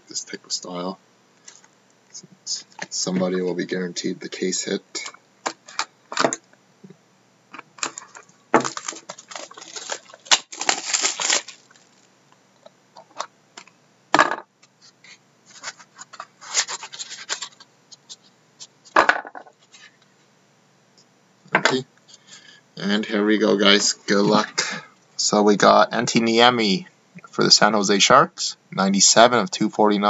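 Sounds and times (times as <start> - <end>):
plastic wrap crinkling: 7.8 - 12.1.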